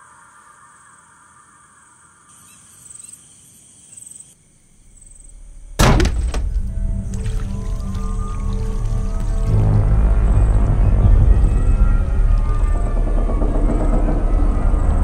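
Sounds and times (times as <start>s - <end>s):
faint high chirping: 0.0s - 5.7s
low sustained music drone: 5.2s - 15.0s
low rumble: 5.3s - 15.0s
sudden loud hit: 5.8s - 7.0s.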